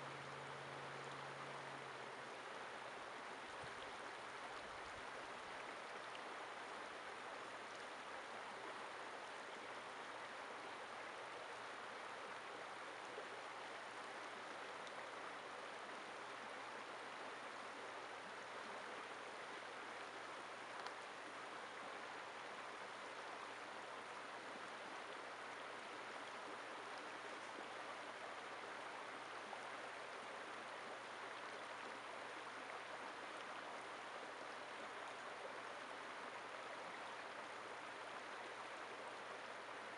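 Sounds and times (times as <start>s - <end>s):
stream running over rocks: 0.0s - 39.9s
faint tick: 6.0s - 6.3s, 7.7s - 8.0s, 14.8s - 15.1s, 20.7s - 21.1s.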